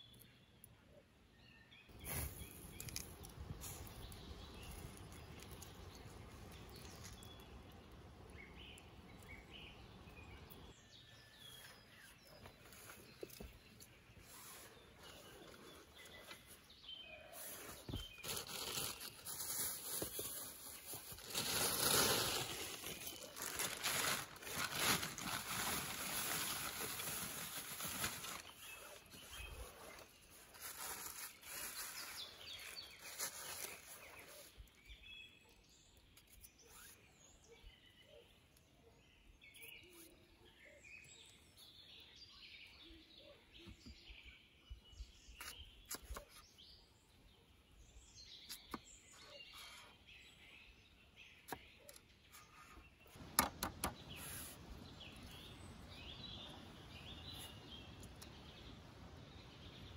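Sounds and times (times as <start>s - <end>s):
faint bird chirps: 0.0s - 53.2s
rustling and crunching handling noises: 1.9s - 10.4s, 11.3s - 34.9s.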